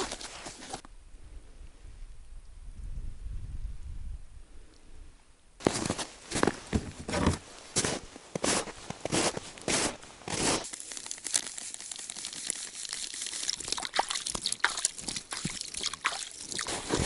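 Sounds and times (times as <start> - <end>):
footsteps crunching in snow: 0.0 - 0.8, 5.6 - 13.1, 15.0 - 17.0
plastic bag crinkling: 10.4 - 17.0
dry bait pouring into bucket: 10.7 - 16.9.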